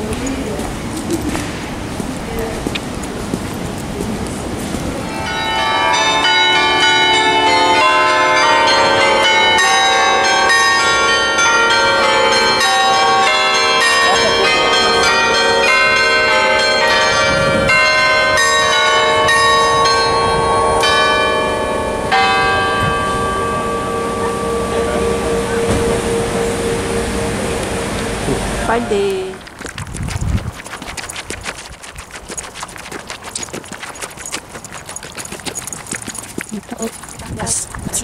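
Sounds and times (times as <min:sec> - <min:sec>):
bells ringing a tune: 0:05.0 - 0:28.3.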